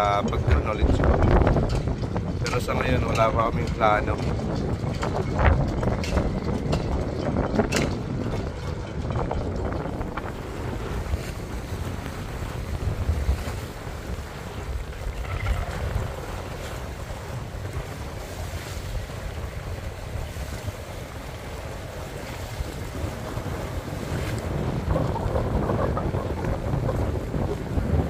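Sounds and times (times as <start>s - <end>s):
wind buffeting microphone: 0.0s - 28.0s
water lapping against rocks: 9.8s - 28.0s.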